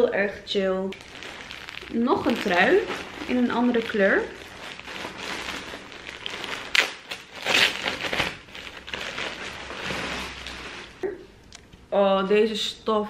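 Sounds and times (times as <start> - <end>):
packaging rustling and crinkling: 0.9 - 11.0.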